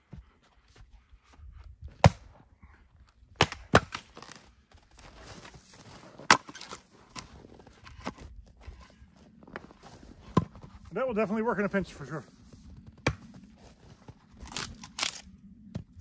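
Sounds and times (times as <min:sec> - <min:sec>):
hatchet splitting wood: 0:03.4 - 0:04.4, 0:06.3 - 0:06.8.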